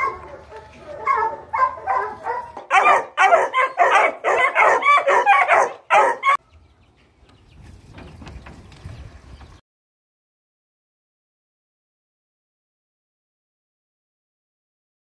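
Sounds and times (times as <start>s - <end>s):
hounds barking and baying: 0.0s - 6.4s.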